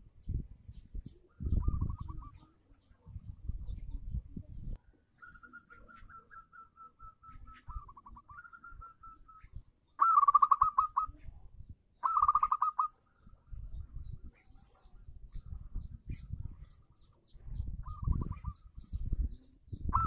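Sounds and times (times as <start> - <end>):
dove cooing: 1.1 - 2.7, 4.9 - 11.3, 12.0 - 13.0, 17.8 - 20.0.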